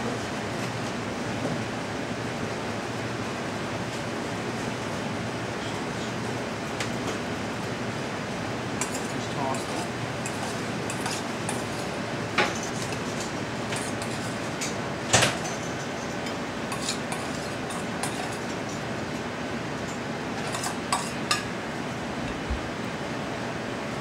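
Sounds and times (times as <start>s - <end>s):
utensil clinking on metal bowl: 8.8s - 18.8s, 19.9s - 21.5s.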